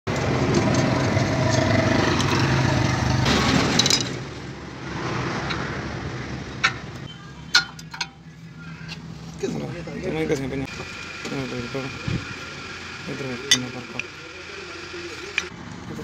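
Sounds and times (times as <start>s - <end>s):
mechanical running noise: 10.7s - 15.5s.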